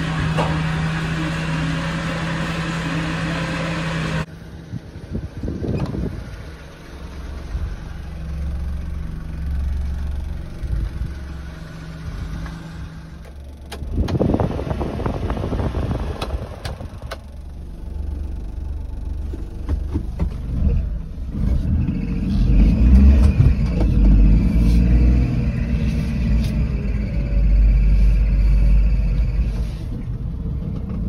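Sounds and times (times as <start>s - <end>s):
truck engine idling: 0.0s - 14.0s
low rumble: 4.2s - 31.0s.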